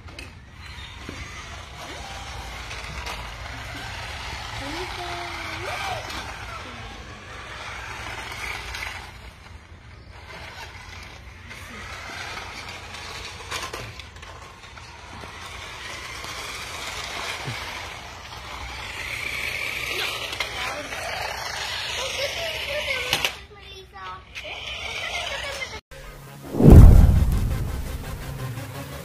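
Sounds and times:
toy karts whirring: 0.0 - 25.8
low rumble: 26.5 - 28.5.

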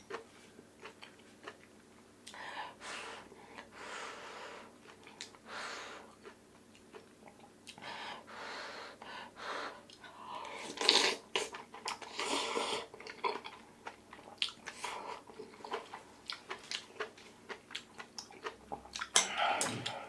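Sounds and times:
chewing: 0.1 - 1.8, 6.1 - 7.8, 9.9 - 20.0.

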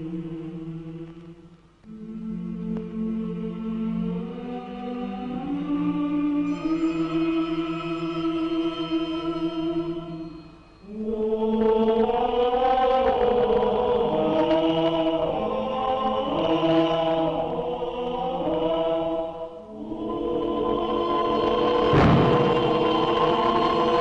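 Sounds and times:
choir chanting long notes: 0.0 - 24.0.

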